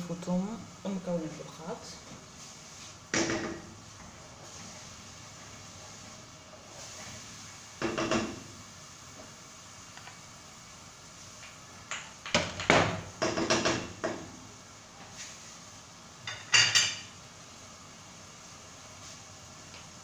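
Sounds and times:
dishes clattering: 0:16.3 - 0:17.1.

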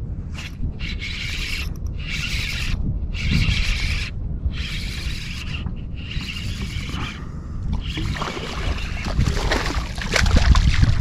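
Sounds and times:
wind on microphone: 0:00.0 - 0:11.0
fishing reel cranking: 0:00.3 - 0:07.2, 0:07.8 - 0:09.2.

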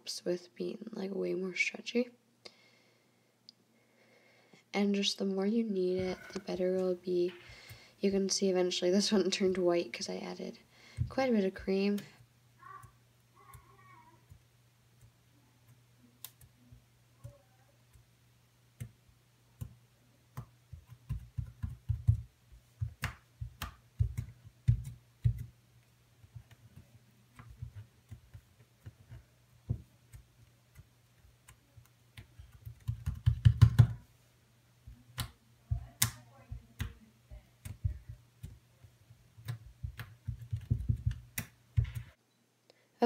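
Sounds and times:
fingers kneading slime: 0:19.6 - 0:34.0, 0:34.8 - 0:37.0, 0:37.6 - 0:42.2.

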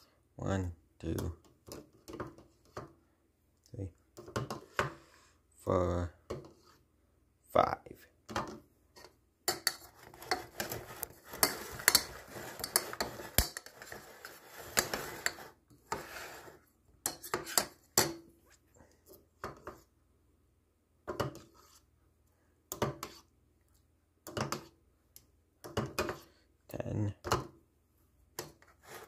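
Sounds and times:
spoon stirring in ceramic bowl: 0:09.0 - 0:18.2.

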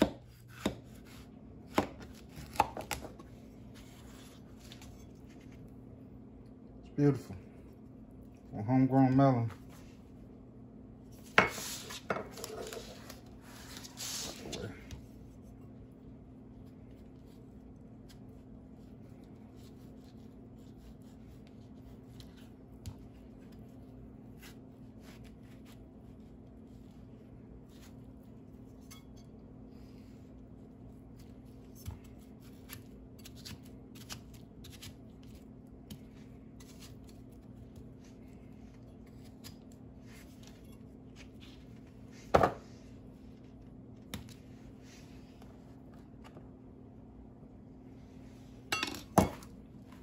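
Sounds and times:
knife cutting melon: 0:00.0 - 0:05.5, 0:31.1 - 0:37.9
faint steady hum: 0:00.0 - 0:50.0.

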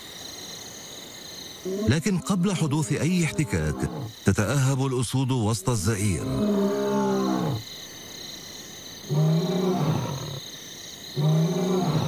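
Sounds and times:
lion roaring: 0:01.7 - 0:04.1, 0:06.2 - 0:07.6, 0:09.1 - 0:10.4, 0:11.2 - 0:12.0.

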